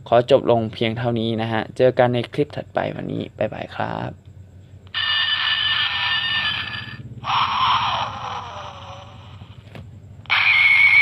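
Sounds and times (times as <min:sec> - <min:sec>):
toy electronic sound effects: 0:04.9 - 0:11.0.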